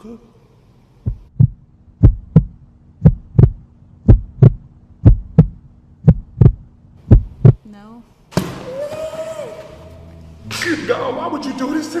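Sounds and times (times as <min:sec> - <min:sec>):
heartbeat thumps: 0:01.0 - 0:07.6.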